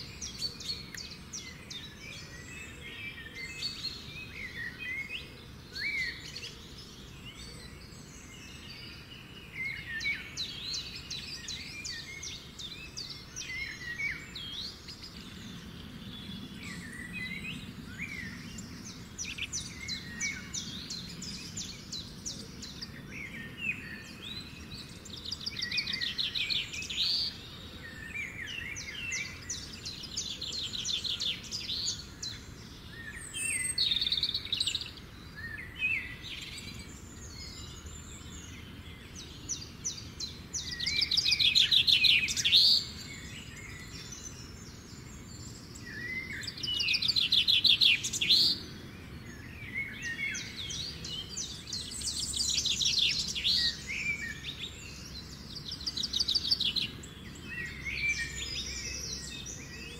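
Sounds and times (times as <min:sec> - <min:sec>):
faint background noise: 0:00.0 - 0:59.9
songbirds trilling and chirping: 0:00.0 - 0:59.9.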